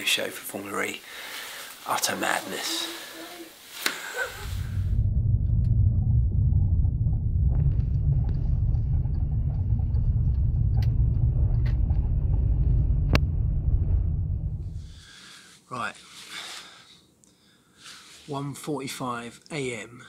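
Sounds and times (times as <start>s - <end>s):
car interior rumble: 4.3s - 15.0s.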